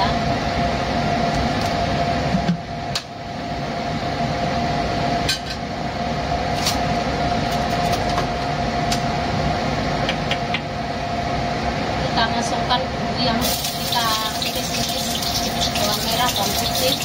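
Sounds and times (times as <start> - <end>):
range hood fan running: 0.0 - 17.0.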